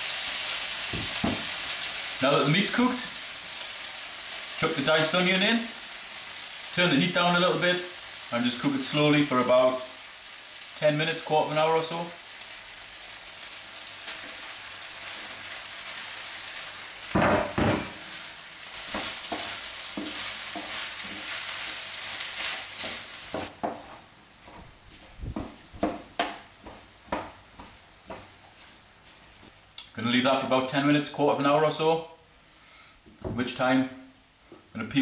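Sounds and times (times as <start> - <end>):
mince sizzling in a frying pan: 0.0 - 23.9
onion thudding into pan: 0.9 - 1.6, 17.1 - 18.2
wooden spoon scraping a pan: 17.4 - 24.0.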